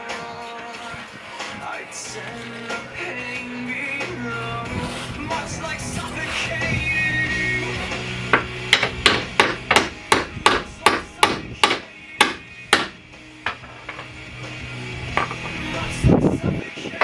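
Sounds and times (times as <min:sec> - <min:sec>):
hammer striking metal: 0:08.3 - 0:14.1.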